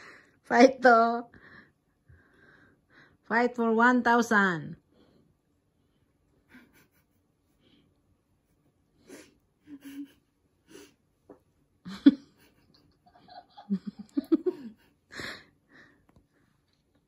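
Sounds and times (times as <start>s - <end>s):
breathy laughter: 9.1s - 10.9s.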